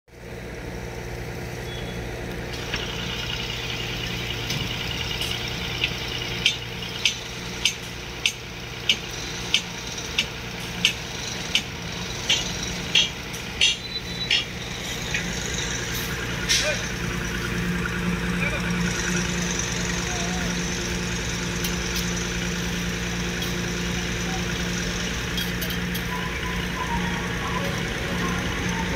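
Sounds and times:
diesel engine running: 0.1s - 28.9s
sharp metallic knocks: 4.4s - 16.8s.

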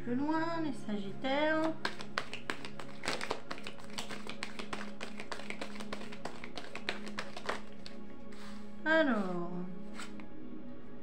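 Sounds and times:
soft background music: 0.0s - 11.0s
cards shuffling: 1.6s - 10.3s.

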